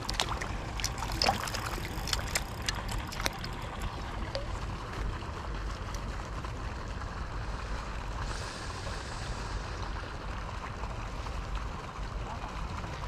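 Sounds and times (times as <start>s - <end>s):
rushing water with deep rumble: 0.0s - 13.0s.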